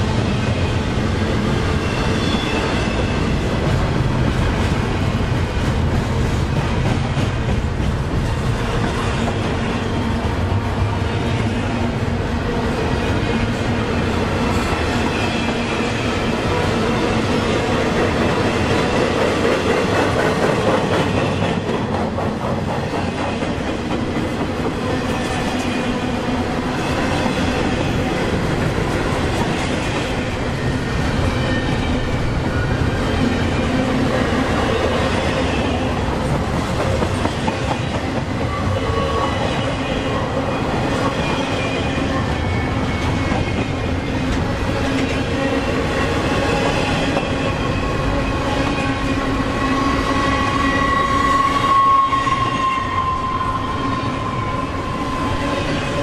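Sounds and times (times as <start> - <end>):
freight train wheels clattering: 17.7 - 26.0.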